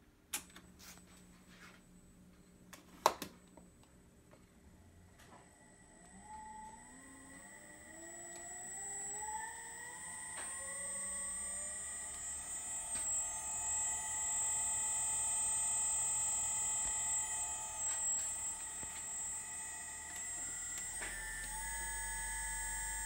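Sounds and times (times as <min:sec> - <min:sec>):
constant high whine: 0:00.0 - 0:23.0
servo motor whine: 0:05.5 - 0:23.0.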